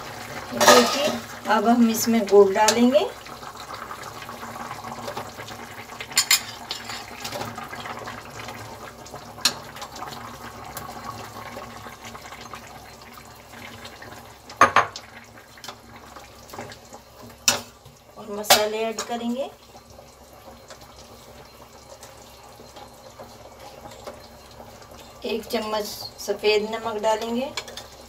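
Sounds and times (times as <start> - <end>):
simmering hiss in pan: 0.0 - 28.0.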